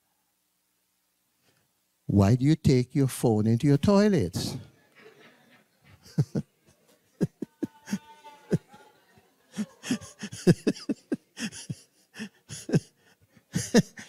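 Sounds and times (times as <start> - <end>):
people laughing: 4.8 - 14.0.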